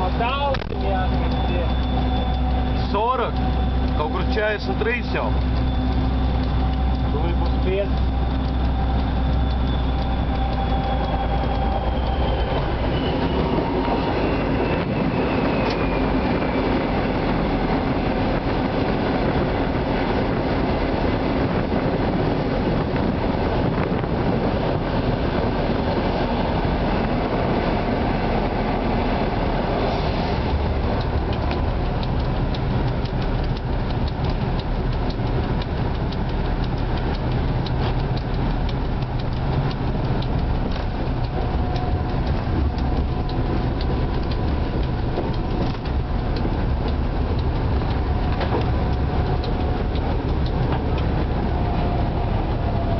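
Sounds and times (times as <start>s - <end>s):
diesel engine drone: 0.0s - 52.9s
rail-joint clicks: 0.0s - 52.9s
wheels rumbling on rail: 0.0s - 52.9s
high falling tone: 5.1s - 21.3s.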